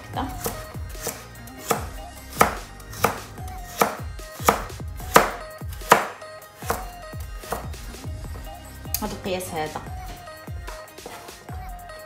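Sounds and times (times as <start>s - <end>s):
knife chopping on plastic board: 0.3s - 8.5s.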